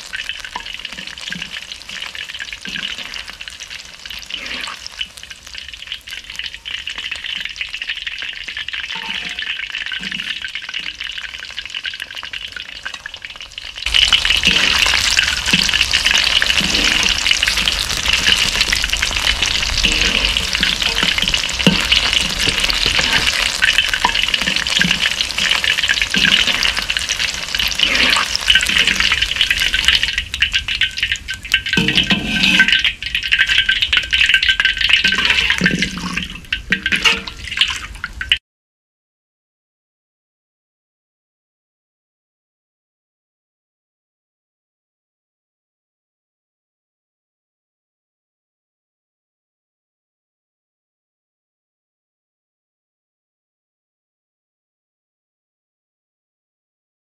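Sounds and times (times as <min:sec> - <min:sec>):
tempura sizzling in oil: 0:00.0 - 0:38.4
metal skimmer knocking on wok: 0:31.6 - 0:32.8.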